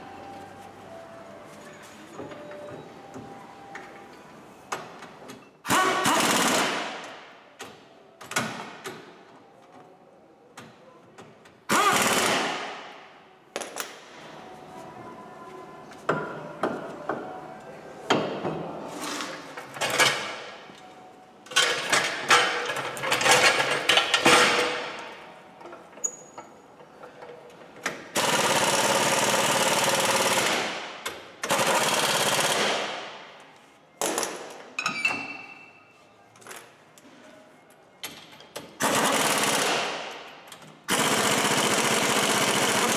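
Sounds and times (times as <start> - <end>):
pneumatic impact wrench bursts: 5.6 - 6.8, 11.7 - 12.6
metal clatter of tools: 21.5 - 24.8.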